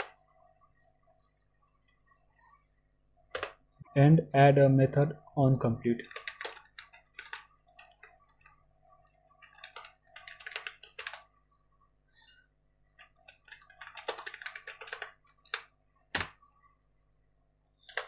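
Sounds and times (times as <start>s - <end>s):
typing on a computer keyboard: 6.0s - 8.6s, 9.4s - 11.3s, 13.0s - 16.4s, 17.8s - 18.0s.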